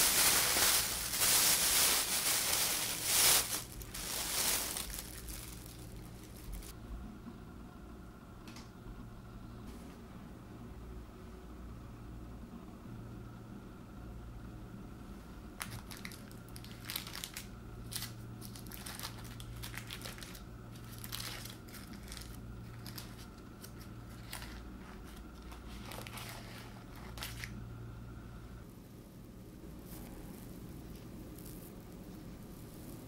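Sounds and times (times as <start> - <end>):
paper liner crinkling and tearing: 0.0 - 6.7, 15.6 - 27.6
faint low hum: 0.0 - 33.0.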